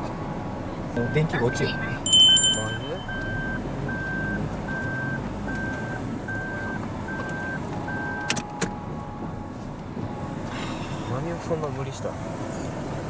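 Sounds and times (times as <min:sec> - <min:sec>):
car warning buzzer beeping: 0:01.0 - 0:09.2.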